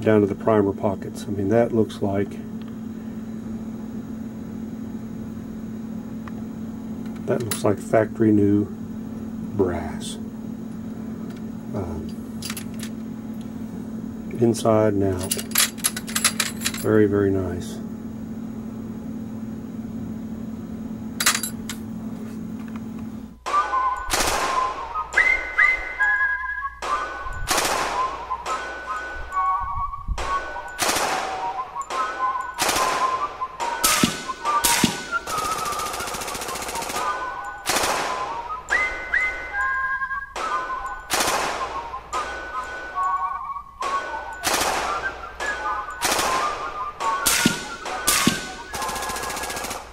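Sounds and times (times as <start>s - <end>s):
steady low hum: 0.0s - 49.9s
metal cartridge cases clinking: 12.4s - 13.1s, 15.1s - 16.9s, 21.2s - 21.9s
faint high whistle-like tones: 23.4s - 49.9s
gunshot sound effect: 23.5s - 24.7s, 26.8s - 28.1s, 33.8s - 35.2s, 40.4s - 42.4s, 43.8s - 48.6s.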